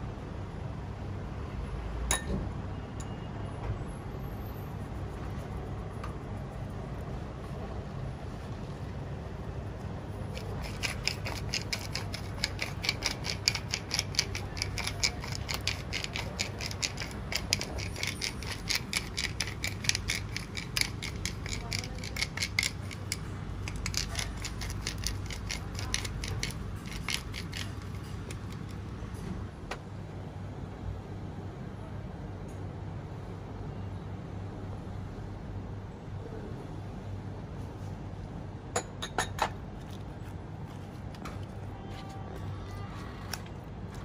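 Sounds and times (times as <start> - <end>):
pepper mill grinding: 10.2 - 28.8.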